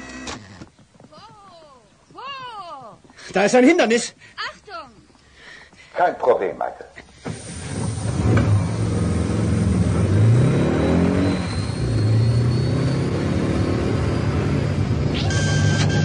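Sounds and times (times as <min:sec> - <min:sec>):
car engine revving: 0:07.3 - 0:16.0.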